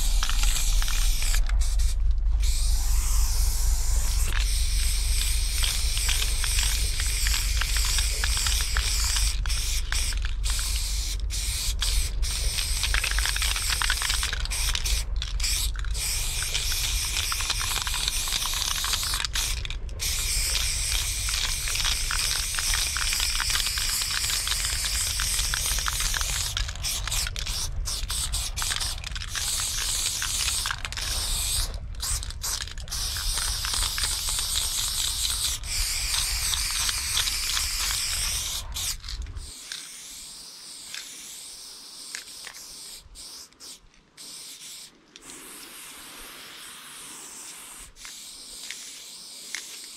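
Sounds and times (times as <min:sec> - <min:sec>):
low rumble: 0:00.0 - 0:39.5
aerosol spray can spraying: 0:00.0 - 0:49.9.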